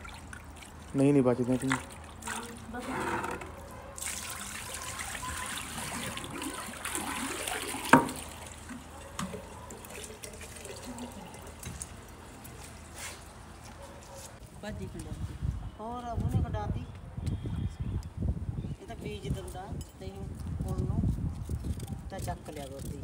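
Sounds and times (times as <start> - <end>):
water running: 4.0 - 13.0.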